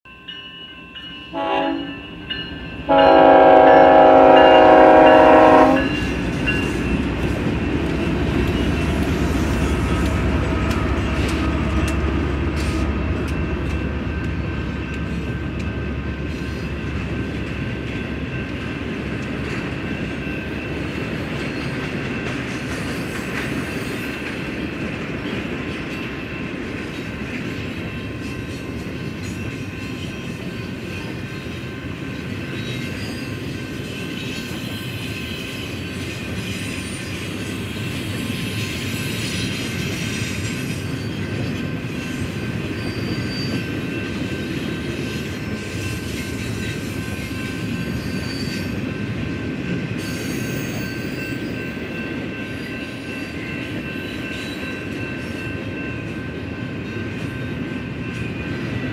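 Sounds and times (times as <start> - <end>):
steel wheels on rail: 0.1 - 58.9
diesel locomotive engine rumbling: 1.3 - 58.9.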